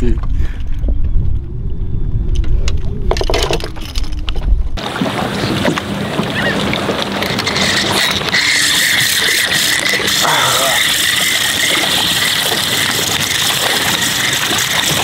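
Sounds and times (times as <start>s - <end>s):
wind rumbling on microphone: 0.0s - 9.2s
water hiss: 7.6s - 15.0s.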